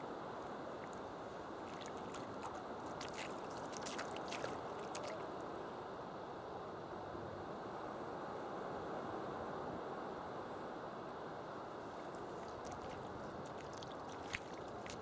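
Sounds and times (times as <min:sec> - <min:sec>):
waves washing over sand: 0:00.1 - 0:05.9, 0:11.7 - 0:15.0.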